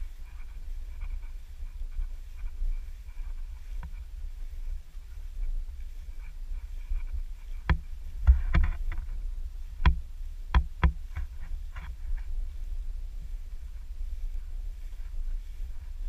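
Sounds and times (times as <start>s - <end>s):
low wind rumble and handling noise: 0.0s - 16.0s
camera rig knocks and brushing: 6.9s - 9.2s.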